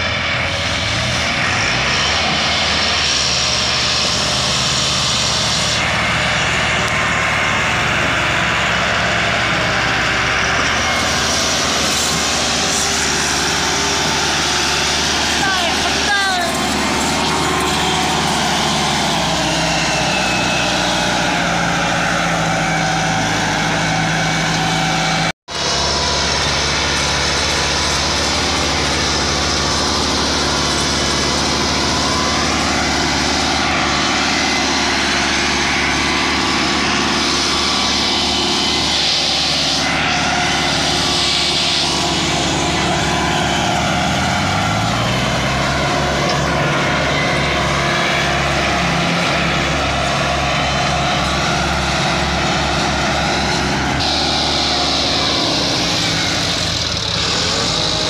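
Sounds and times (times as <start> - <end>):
tractor diesel engine under load: 0.0 - 58.0.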